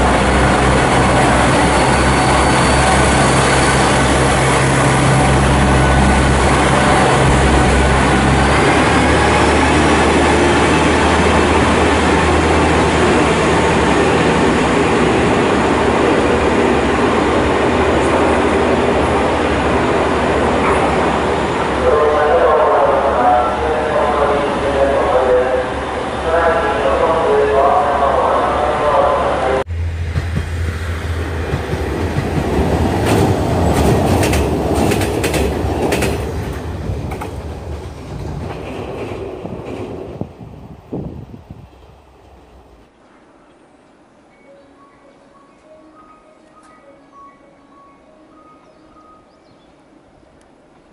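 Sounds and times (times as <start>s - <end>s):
train wheels on rails: 0.0s - 21.8s, 29.7s - 44.0s
diesel engine drone: 0.0s - 31.7s
wheel clacks over rail joints: 31.5s - 40.0s.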